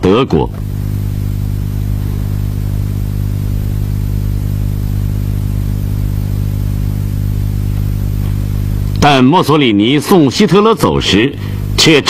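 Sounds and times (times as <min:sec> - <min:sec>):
loud electrical hum: 0:00.0 - 0:12.0.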